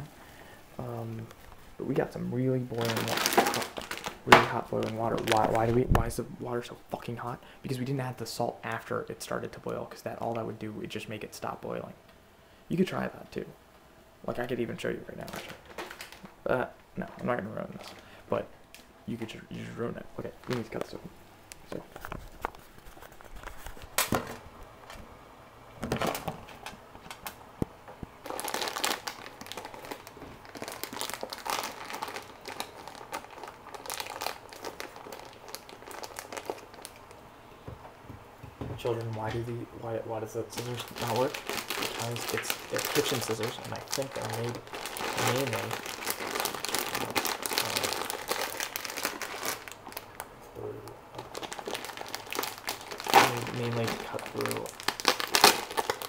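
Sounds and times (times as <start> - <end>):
plastic packaging crinkling: 0.0 - 6.2, 14.3 - 16.4, 17.0 - 25.0, 28.2 - 37.3, 38.8 - 56.0
scissors cutting plastic bag: 51.4 - 56.0.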